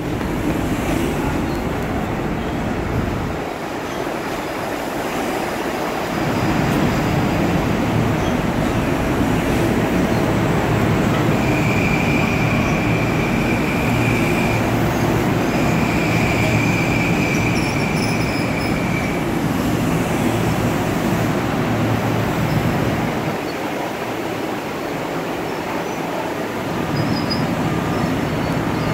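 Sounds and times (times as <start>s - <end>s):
train rumbling on rails: 0.0s - 28.9s.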